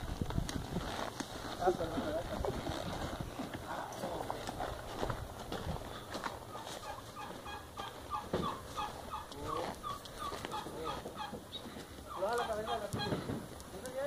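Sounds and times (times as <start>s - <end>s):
horse hooves on dirt: 0.0s - 14.0s
fowl calling: 5.9s - 13.4s.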